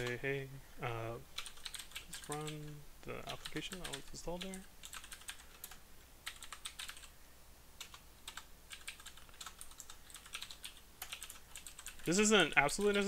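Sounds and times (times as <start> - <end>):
typing on computer keyboard: 1.4 - 7.1, 7.8 - 12.1.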